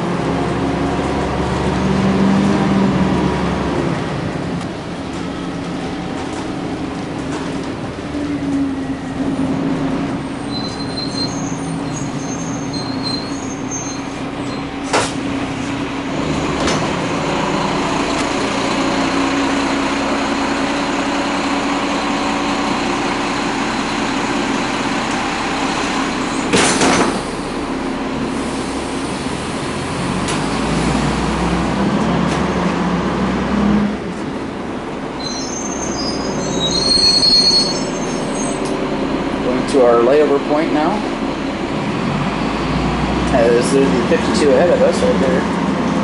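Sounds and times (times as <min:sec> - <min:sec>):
bus diesel engine running: 0:00.0 - 0:46.0
high-pitched brake squeal: 0:10.3 - 0:14.7, 0:35.2 - 0:38.8.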